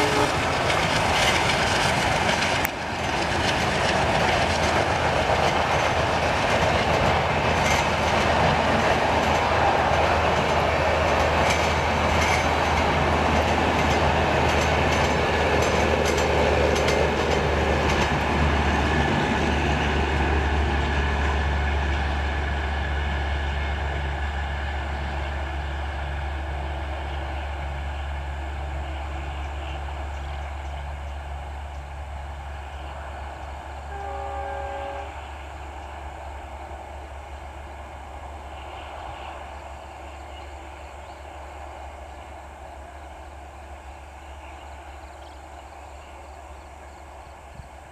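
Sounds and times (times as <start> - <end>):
locomotive horn: 0.0 - 0.6, 33.9 - 35.4
train rumbling past: 0.0 - 47.9.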